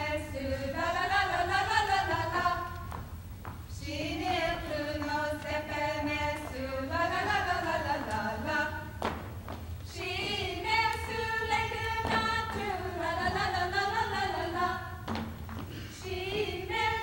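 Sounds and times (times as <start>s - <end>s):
women singing unaccompanied: 0.0s - 3.0s, 3.7s - 17.0s
dance steps on wooden floor: 2.8s - 3.8s, 8.9s - 11.2s, 14.6s - 16.5s.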